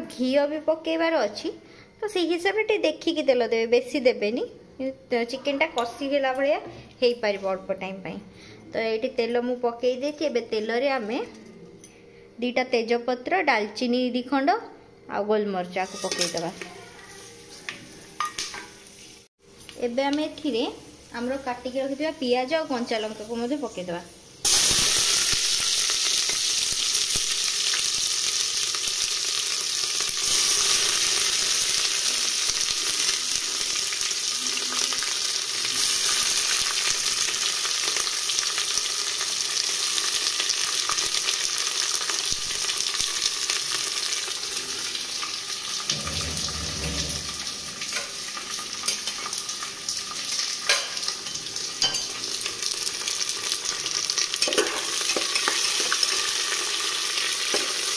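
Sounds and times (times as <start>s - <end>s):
onions sizzling in hot oil: 15.8s - 57.9s.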